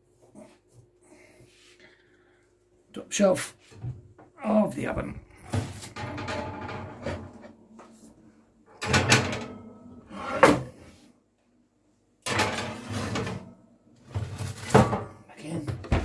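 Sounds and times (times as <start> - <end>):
metal clanks and scrapes: 5.5 - 7.6, 8.8 - 10.9, 12.3 - 13.5.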